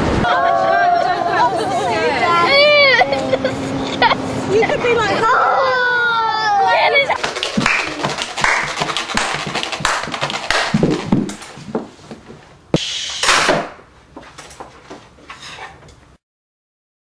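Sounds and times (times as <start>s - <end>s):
children handling objects: 1.4s - 12.5s, 13.2s - 16.0s
sharp knock: 12.8s - 13.8s.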